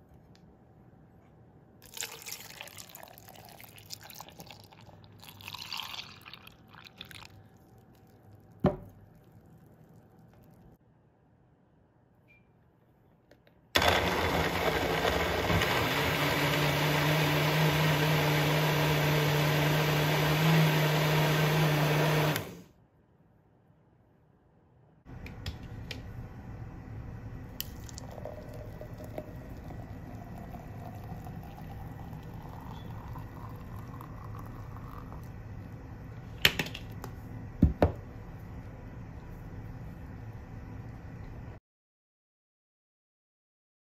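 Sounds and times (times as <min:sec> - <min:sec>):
smoothie pouring into a glass: 0:01.8 - 0:08.2, 0:27.6 - 0:35.4
blender motor running: 0:13.8 - 0:22.7.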